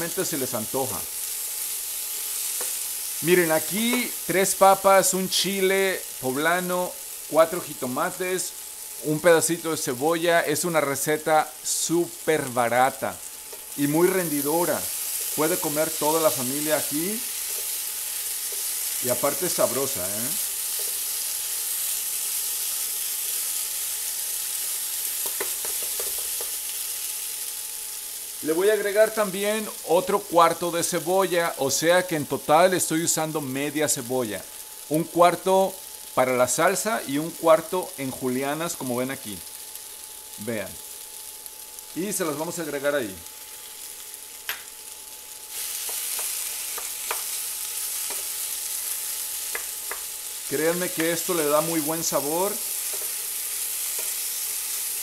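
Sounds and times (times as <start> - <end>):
potatoes sizzling in oil: 0.0 - 55.0
wooden spoon stirring: 13.5 - 21.2
wooden spoon knocking on pan: 25.2 - 26.6, 45.8 - 47.3, 49.5 - 50.1.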